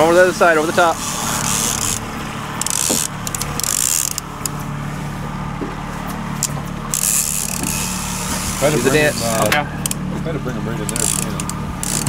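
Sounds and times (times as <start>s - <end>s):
outboard motor idling: 0.0s - 12.0s
fishing reel clicking and whirring: 0.2s - 4.6s, 6.4s - 10.0s, 10.8s - 12.0s.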